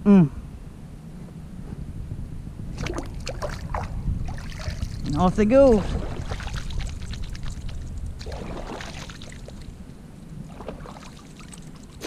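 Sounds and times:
water lapping against kayak hull: 0:02.7 - 0:12.0.

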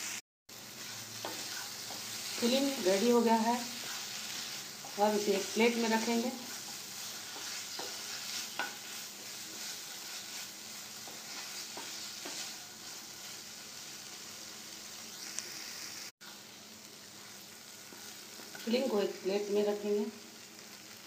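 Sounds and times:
food sizzling in oil: 0:00.0 - 0:21.0
spatula scraping a pan: 0:00.7 - 0:14.1.

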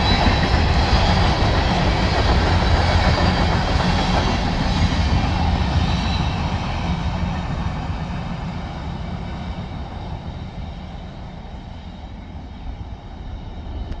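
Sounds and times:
train cars rolling on rails: 0:00.0 - 0:06.6.

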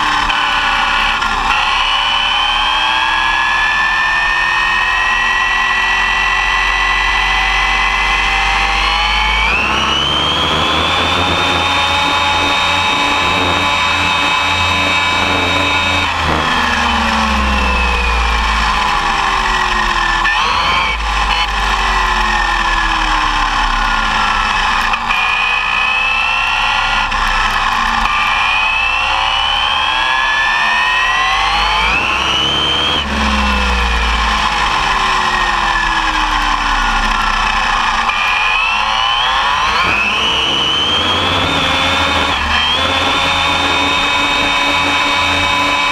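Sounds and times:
electric motor whining: 0:00.0 - 0:45.9
steady low rumble: 0:08.8 - 0:21.4.

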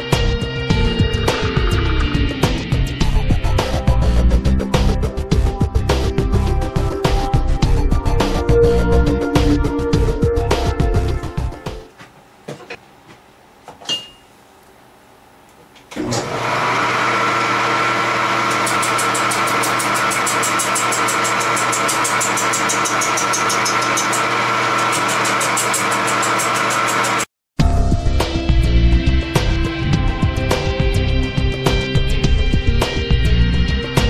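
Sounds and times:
wood lathe humming: 0:16.0 - 0:27.3.

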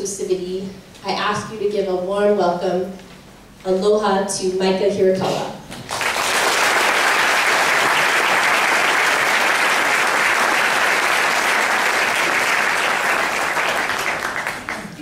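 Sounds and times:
audience applauding: 0:05.9 - 0:15.0.

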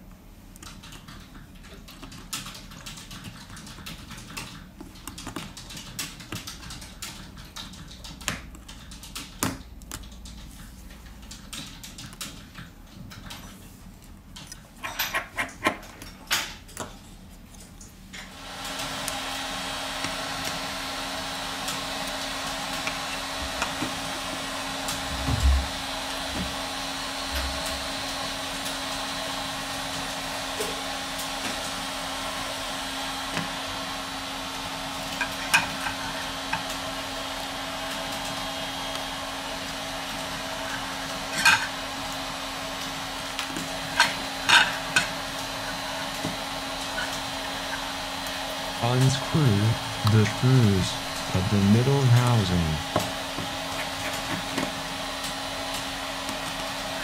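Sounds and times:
small tools clicking on phone: 0:00.6 - 0:12.6.

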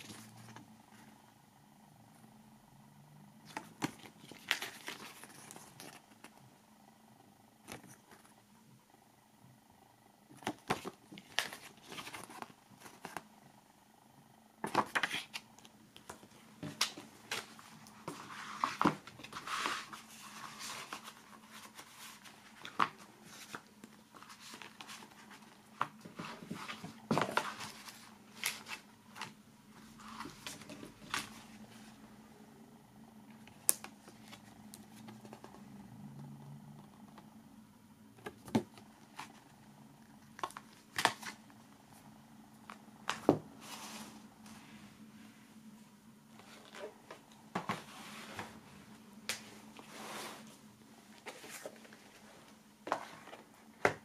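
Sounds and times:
faint low hum: 0:00.0 - 0:54.0
paper rustling: 0:16.1 - 0:31.8.

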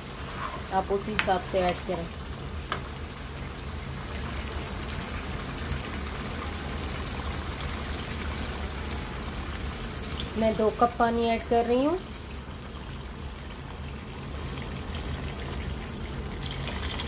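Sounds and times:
curry sizzling in a wok: 0:00.0 - 0:17.0
water pouring into a wok: 0:12.3 - 0:17.0.

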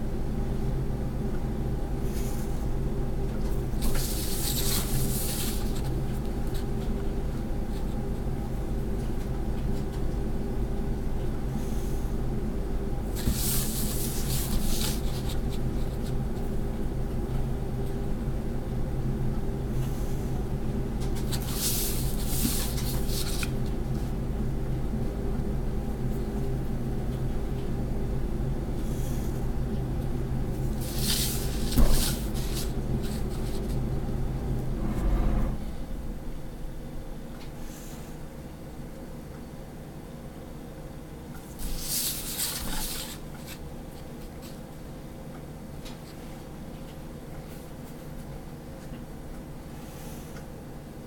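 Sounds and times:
low hum: 0:28.7 - 0:37.7.

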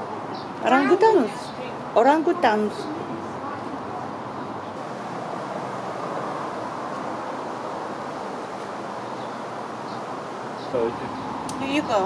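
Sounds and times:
steady rushing noise: 0:02.9 - 0:12.0.

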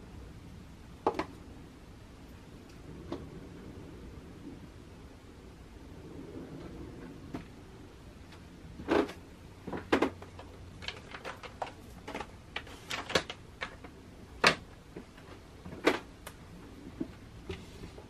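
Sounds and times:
makeup cases clacking: 0:08.9 - 0:14.7.

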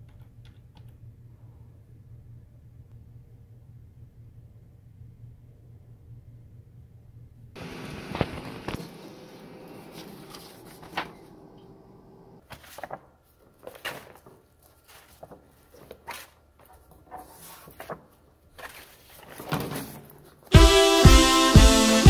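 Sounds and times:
paper rustling: 0:07.6 - 0:11.8, 0:12.4 - 0:20.5
printer humming: 0:07.6 - 0:12.4.

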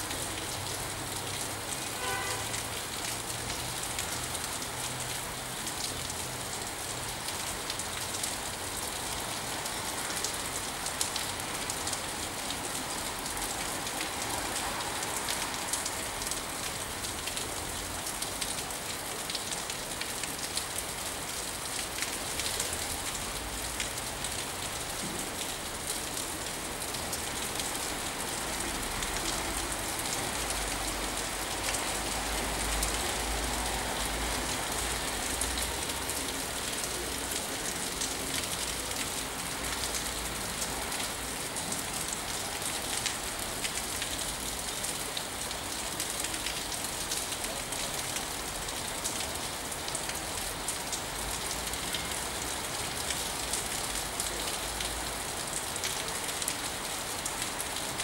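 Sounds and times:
steady rain: 0:00.0 - 0:58.0.

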